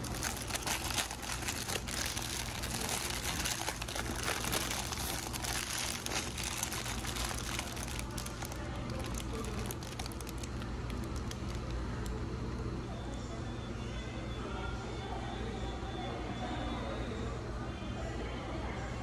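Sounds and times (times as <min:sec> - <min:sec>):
paper wrapper crinkling: 0:00.0 - 0:11.8
steady low hum: 0:00.0 - 0:19.0.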